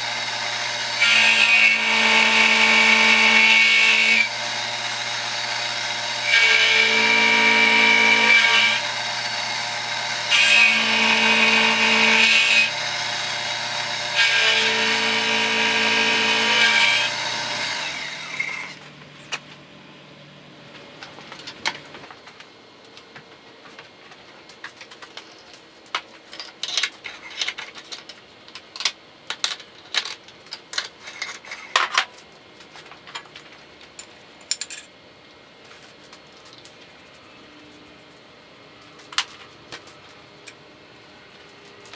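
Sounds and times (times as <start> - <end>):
milling machine cutting metal: 0.0 - 18.8.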